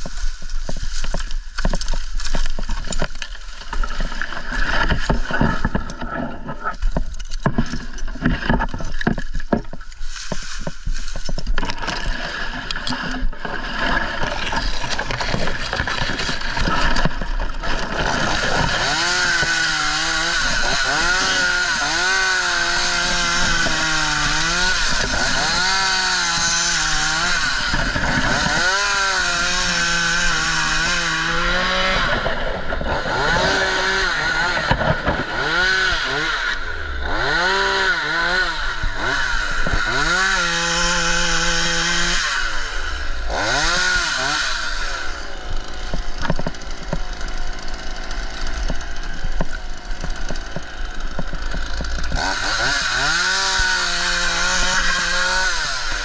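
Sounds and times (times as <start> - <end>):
chainsaw cutting: 0.0 - 56.0.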